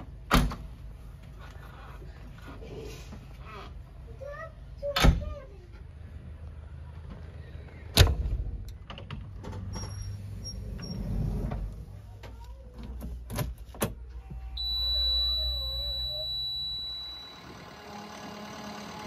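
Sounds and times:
diesel engine cranking: 14.6 - 19.0
steady high tone: 14.6 - 19.0.

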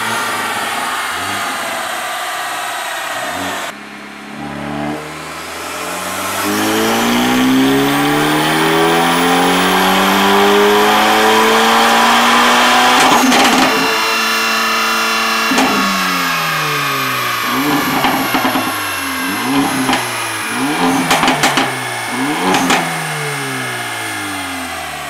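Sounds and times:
car engine revving on dyno: 0.0 - 25.0
burst of noise as throttle closes: 6.0 - 24.3.

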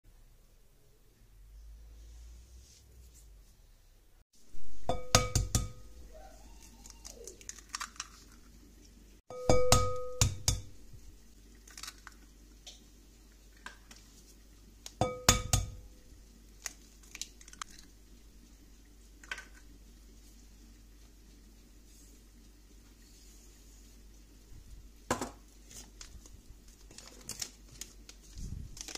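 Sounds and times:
eggs cracking on glass bowl: 6.8 - 8.5, 11.6 - 12.3.

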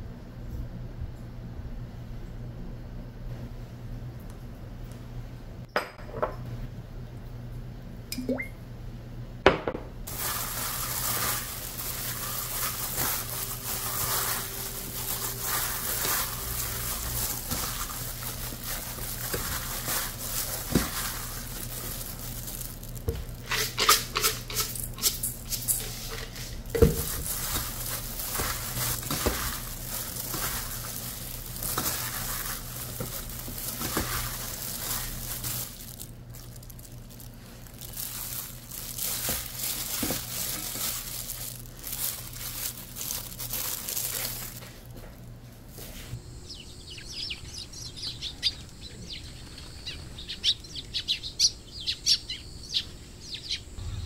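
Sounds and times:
wet squishing and rustling: 10.1 - 45.0.

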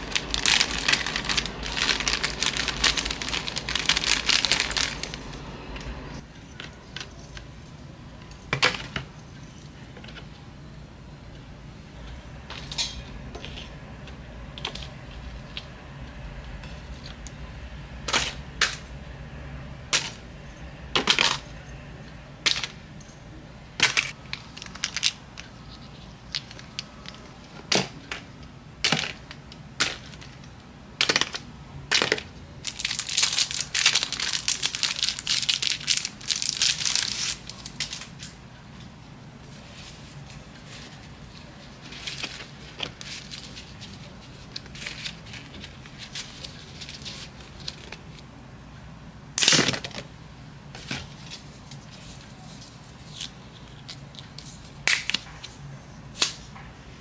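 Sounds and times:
cardboard crinkling and rustling: 0.0 - 6.2.

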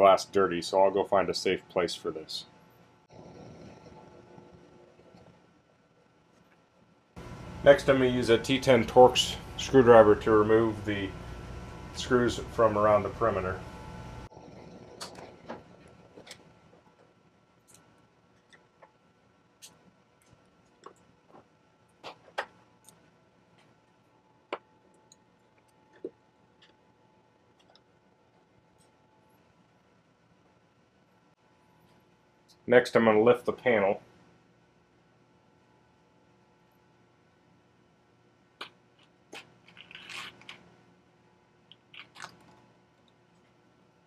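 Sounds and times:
crackling: 41.6 - 43.6.

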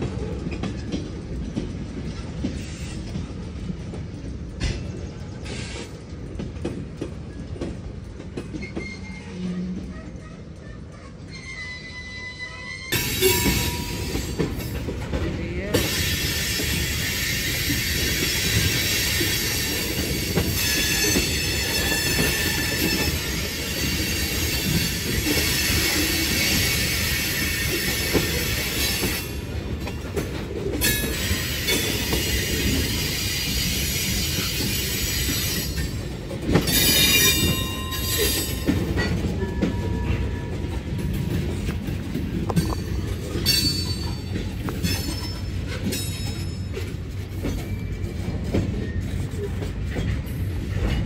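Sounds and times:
freight cars rumbling on rails: 0.0 - 51.0
steel wheels squealing: 8.5 - 14.8, 15.7 - 41.7, 42.5 - 51.0.

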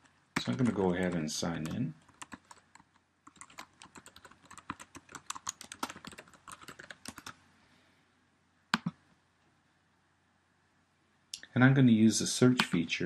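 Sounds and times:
typing on computer keyboard: 0.4 - 7.4.

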